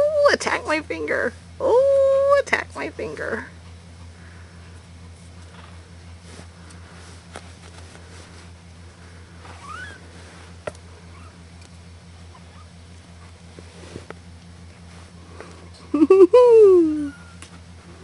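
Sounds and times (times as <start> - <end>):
steady low hum: 0.0 - 18.0
kitten mewing: 9.6 - 10.0.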